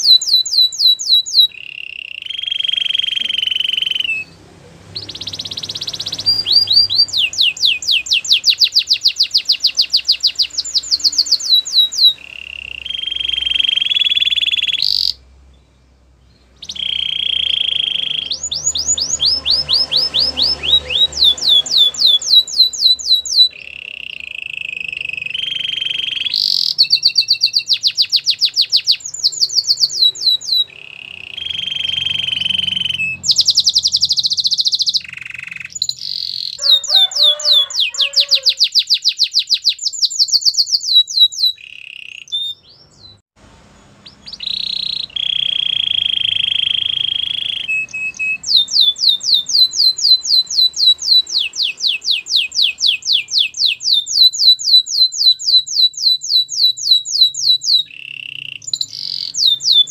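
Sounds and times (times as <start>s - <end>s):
canary singing: 0.0s - 59.9s.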